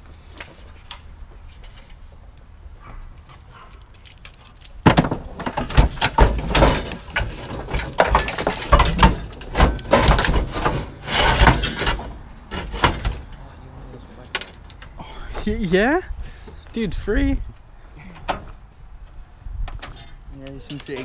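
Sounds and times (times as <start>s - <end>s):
metal knocks and clatters: 4.8s - 13.4s
scrap car parts clanking: 4.8s - 13.4s.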